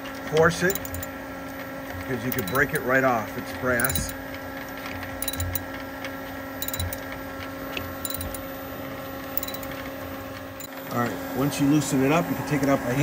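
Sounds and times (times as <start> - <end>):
socket wrench ratchet clicking: 0.7 - 1.1, 2.3 - 2.8, 3.8 - 4.2, 5.2 - 5.6, 6.6 - 7.0, 8.1 - 8.4, 9.4 - 9.7.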